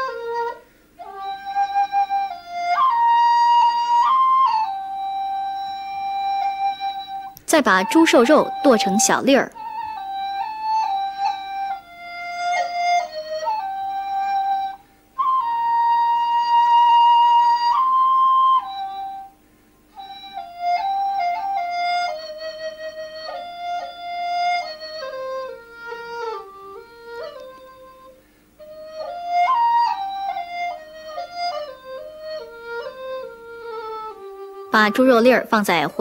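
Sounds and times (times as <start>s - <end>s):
solo flute slow melody: 0.0s - 36.0s.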